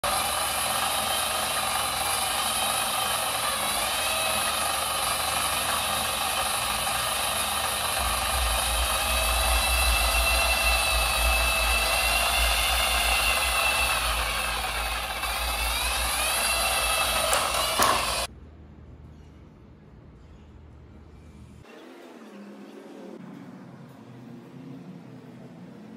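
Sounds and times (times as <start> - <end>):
treadmill motor whine: 0.0 - 18.3
low rumble: 7.8 - 16.2.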